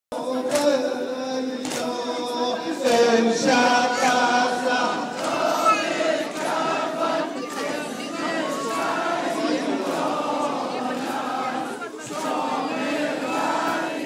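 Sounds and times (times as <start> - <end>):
group chanting a lament: 0.1 - 14.0.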